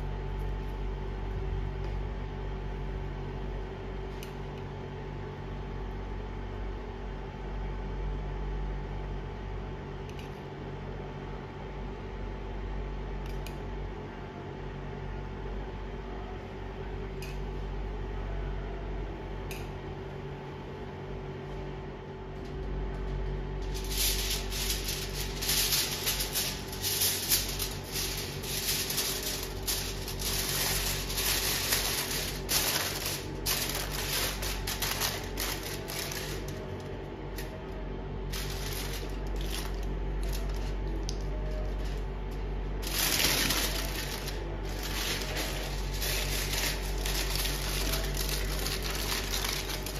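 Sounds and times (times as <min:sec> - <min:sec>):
cooling fan humming: 0:00.0 - 0:49.9
aluminium foil crinkling: 0:23.6 - 0:37.5, 0:38.3 - 0:42.0, 0:42.8 - 0:49.9.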